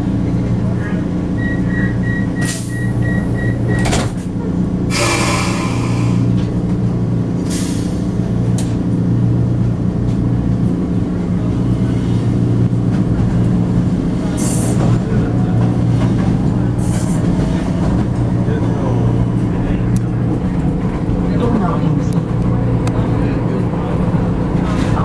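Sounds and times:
train motors humming: 0.0s - 25.0s
door-warning beeps: 1.4s - 4.1s
train doors shutting knock: 3.6s - 4.3s.

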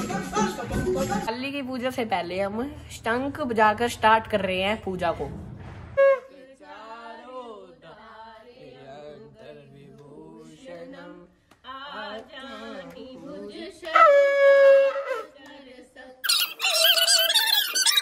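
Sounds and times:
soft singing voices: 0.0s - 1.3s, 6.2s - 16.3s
conch shell blast: 6.0s - 6.3s.

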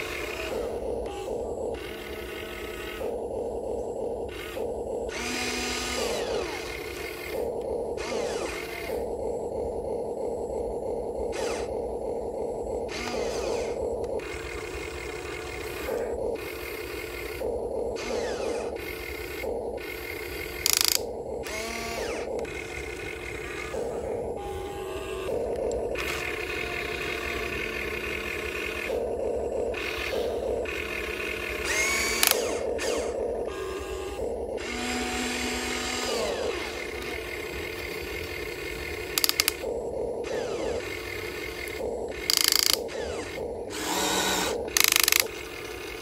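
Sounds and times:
small electric motors whining: 0.0s - 46.0s
sharp click: 39.1s - 39.6s, 41.6s - 42.9s.

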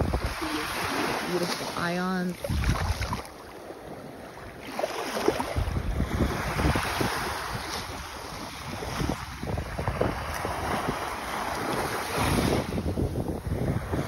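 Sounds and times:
surf washing on beach: 0.0s - 14.0s
wind buffeting microphone: 0.0s - 14.0s.

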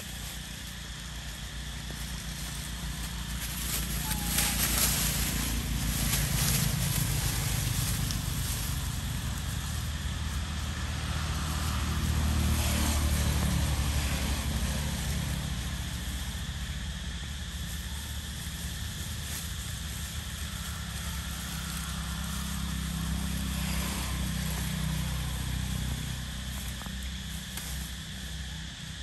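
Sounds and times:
distant vehicle engine hum: 0.0s - 29.0s.

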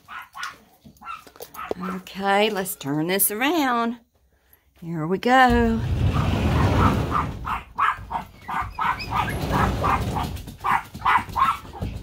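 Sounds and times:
dogs barking: 0.0s - 2.1s, 6.1s - 12.0s.

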